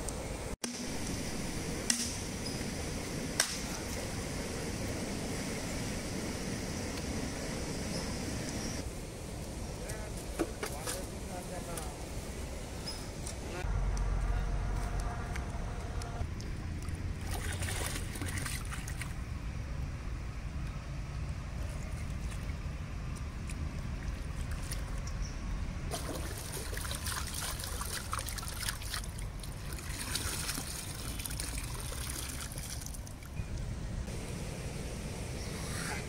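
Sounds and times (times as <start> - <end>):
steady low rumble: 0.0 - 10.4, 11.1 - 25.9, 33.2 - 36.0
river water splashing: 16.2 - 19.2, 21.2 - 25.1, 25.9 - 33.4
water trickling off bowl: 25.9 - 33.4.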